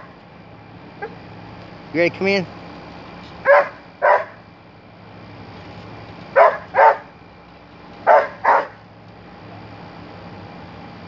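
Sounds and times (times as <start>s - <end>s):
dog barking: 3.4s - 4.4s, 6.4s - 7.1s, 8.1s - 8.8s.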